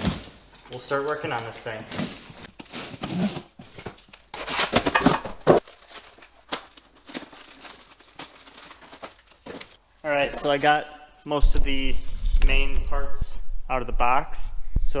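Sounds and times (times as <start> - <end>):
packaging rustling: 0.0 - 9.8
cardboard box tearing: 4.3 - 6.1.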